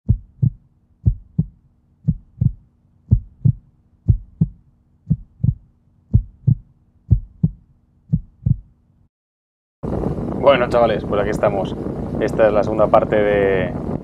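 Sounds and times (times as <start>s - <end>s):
heartbeat thumping: 0.1s - 8.8s.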